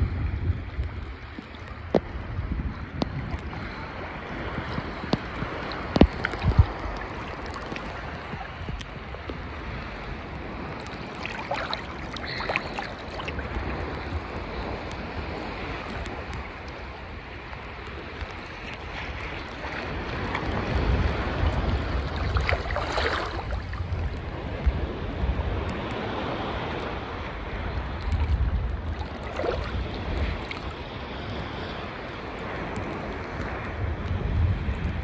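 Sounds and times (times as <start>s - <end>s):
sea water sloshing and lapping: 0.0s - 35.0s
wind buffeting microphone: 0.0s - 35.0s.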